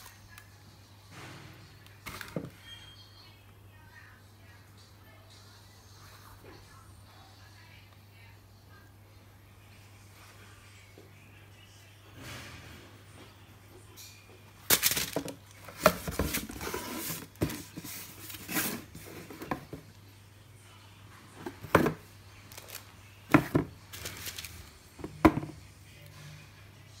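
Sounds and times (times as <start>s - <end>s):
cardboard box handled on wood: 15.7s - 19.8s.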